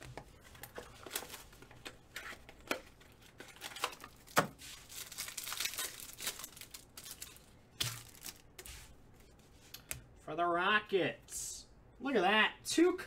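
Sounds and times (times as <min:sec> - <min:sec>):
card pack wrappers crinkling: 0:00.4 - 0:08.8.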